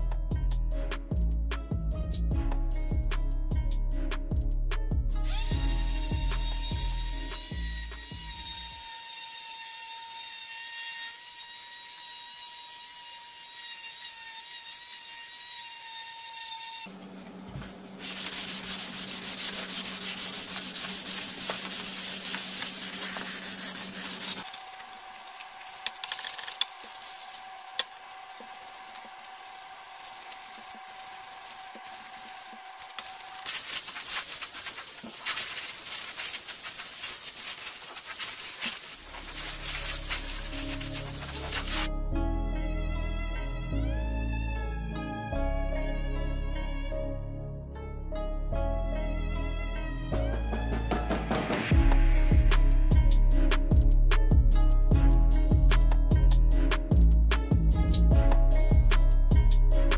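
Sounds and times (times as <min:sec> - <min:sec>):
hand sanding wood: 0:18.0 - 0:41.9.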